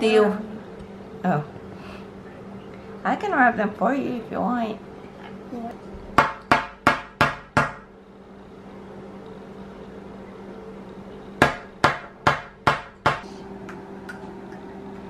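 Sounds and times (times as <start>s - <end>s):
low steady hum: 0.0s - 15.0s
sharp knocks on hard surface: 6.2s - 7.8s, 11.4s - 13.2s.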